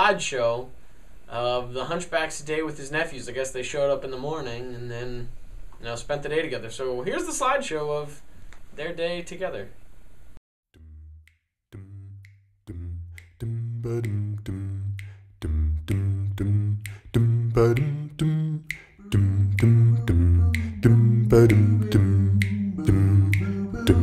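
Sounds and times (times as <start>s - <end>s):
vocal percussion clicks: 10.8s - 24.0s
deep bass voice singing: 11.7s - 24.0s.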